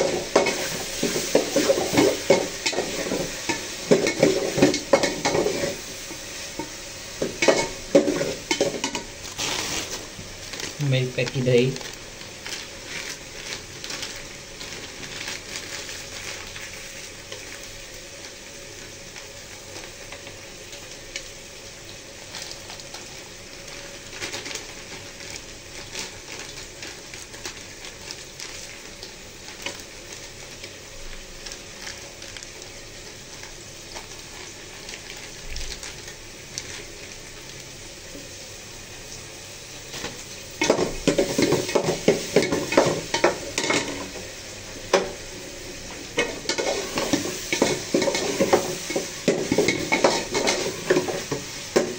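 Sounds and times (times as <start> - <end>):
crackles: 0.0 - 51.9
food sizzling in oil: 0.0 - 51.9.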